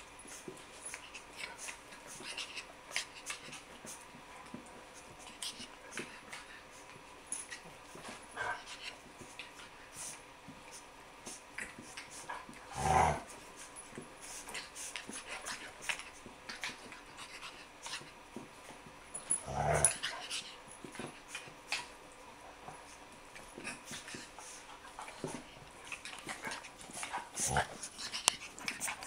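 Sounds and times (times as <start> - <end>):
dogs snuffling and panting: 0.0 - 29.0
dog growling: 12.7 - 13.3, 19.4 - 20.1, 27.1 - 27.9.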